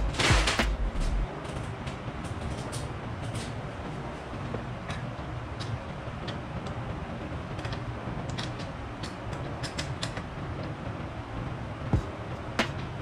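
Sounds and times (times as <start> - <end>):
low workshop hum: 0.0 - 13.0
light clicks and taps of tools: 7.6 - 10.8.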